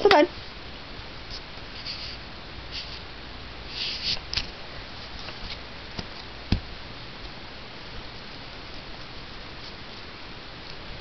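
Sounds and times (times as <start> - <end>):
dull thump: 6.5 - 6.7.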